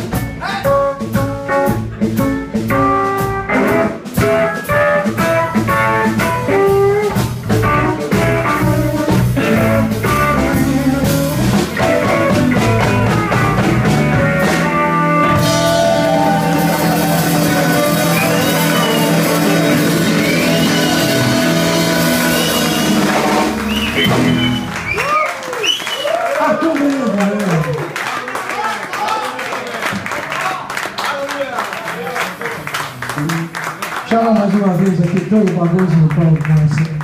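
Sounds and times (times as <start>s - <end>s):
live blues rock band: 0.0s - 28.0s.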